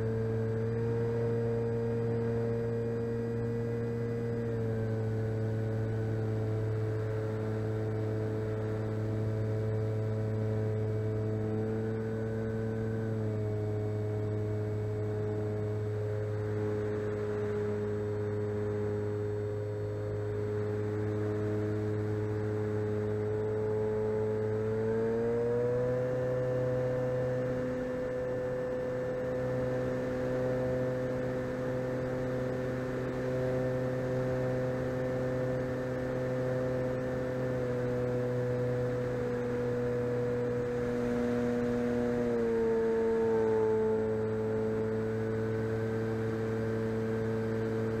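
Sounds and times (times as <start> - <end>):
model plane motor whining: 26.5 - 48.0.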